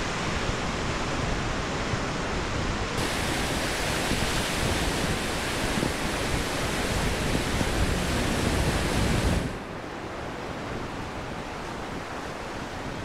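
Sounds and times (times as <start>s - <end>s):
wind on microphone: 0.0s - 13.0s
surf breaking on beach: 2.9s - 9.7s.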